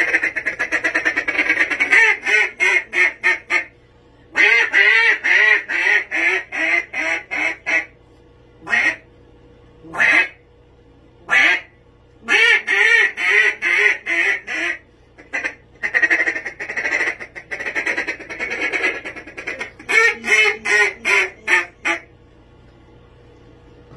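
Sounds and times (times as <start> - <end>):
duck call quacks: 0.0 - 3.7, 4.3 - 8.0, 8.6 - 9.0, 9.9 - 10.4, 11.3 - 22.1
duck call rolling chatter: 0.0 - 3.7, 4.4 - 7.9, 8.6 - 9.0, 9.9 - 10.4, 11.3 - 22.1.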